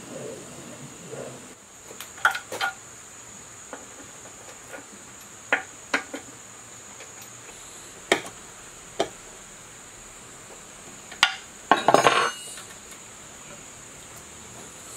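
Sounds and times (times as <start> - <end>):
metallic tool clinks: 11.8 - 12.7.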